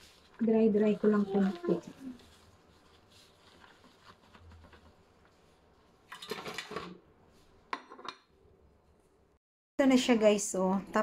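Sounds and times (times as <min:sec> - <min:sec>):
paper crinkling and crumpling: 0:00.0 - 0:07.5
paper towels rustling: 0:00.0 - 0:07.7.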